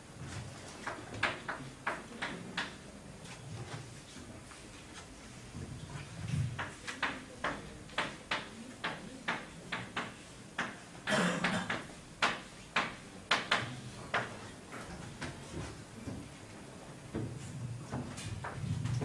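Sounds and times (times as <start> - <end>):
chalk tapping on blackboard: 0.7 - 2.8, 6.4 - 14.5.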